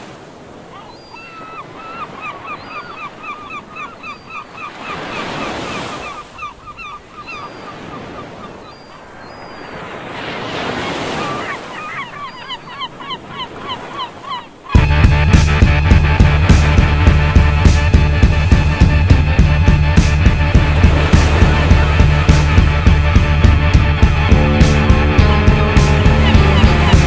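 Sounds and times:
gulls calling: 0.5s - 27.0s
surf breaking: 13.2s - 27.0s.

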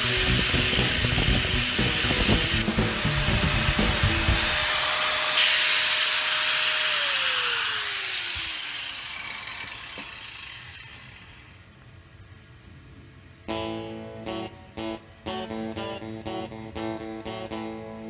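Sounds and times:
angle grinder grinding steel: 0.0s - 11.6s
grinder whine spinning down: 0.0s - 11.7s.

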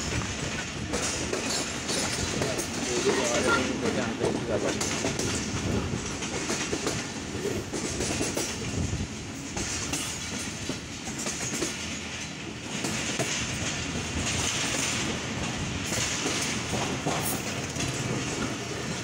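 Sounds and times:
train rolling noise: 0.0s - 19.0s
wheels clicking over rail joints: 0.0s - 19.0s.

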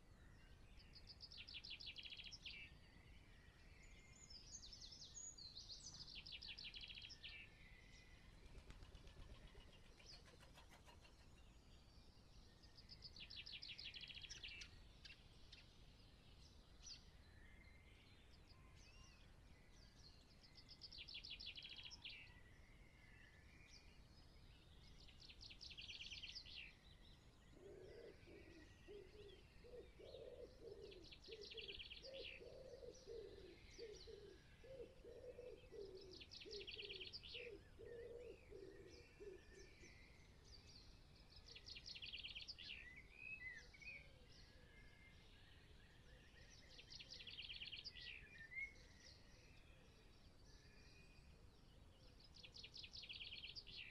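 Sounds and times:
wood pigeon cooing: 27.6s - 39.6s.

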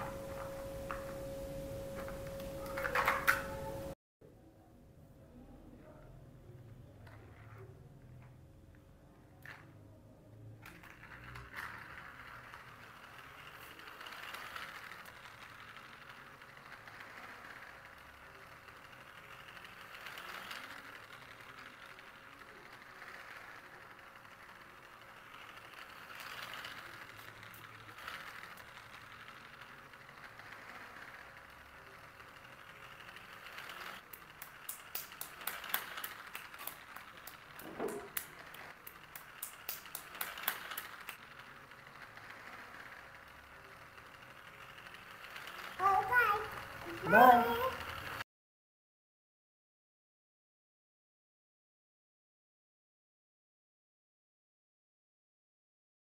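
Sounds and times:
toy train motor running: 0.0s - 3.9s, 9.4s - 9.6s, 10.4s - 48.2s.

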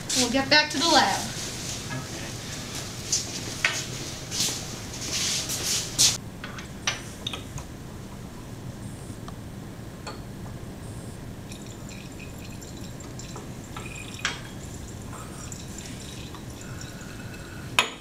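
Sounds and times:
low steady hum: 6.2s - 18.0s
liquid dripping: 11.4s - 17.6s
glassware clinking: 11.5s - 18.0s.

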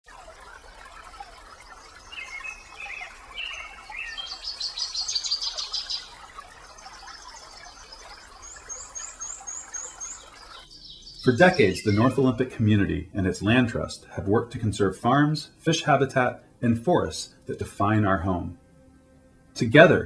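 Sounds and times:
songbirds singing: 0.3s - 13.8s
rapid high bird trill: 1.5s - 12.2s.

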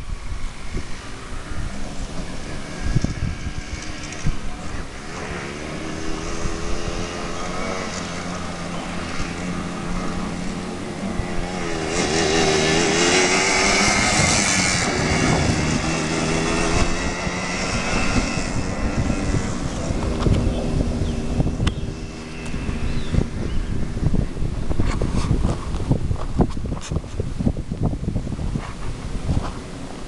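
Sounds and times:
quad bike engine revving: 2.4s - 25.1s.

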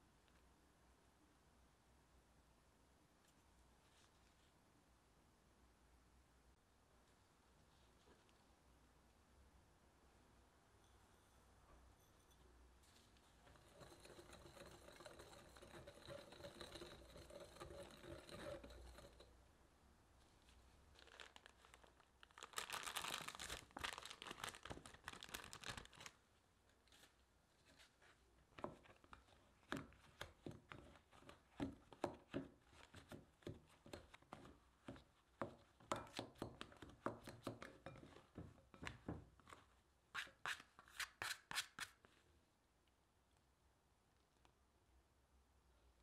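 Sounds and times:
plastic scrapers chopping butter: 13.6s - 19.3s.

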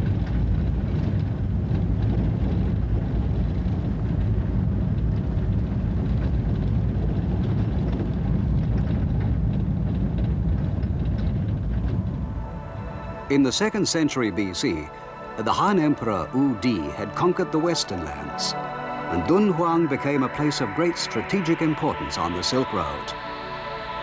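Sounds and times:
vehicle rumbling over gravel: 0.0s - 14.9s.

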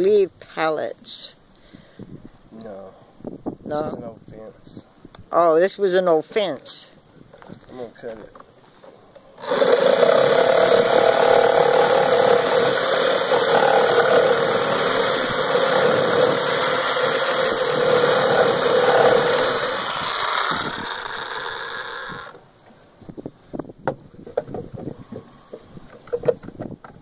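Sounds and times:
reciprocating saw cutting wood: 9.4s - 22.4s.

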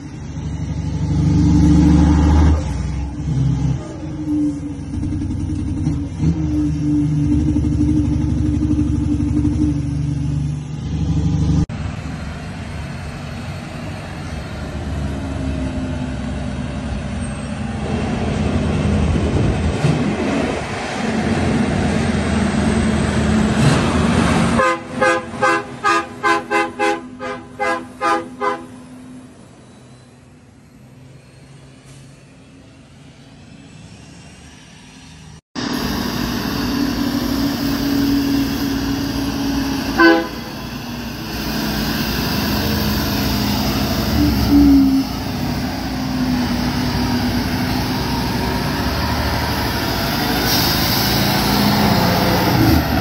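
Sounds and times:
diesel truck engine droning: 0.0s - 53.0s
rushing noise: 28.8s - 53.0s
short horn toots: 39.9s - 40.6s.

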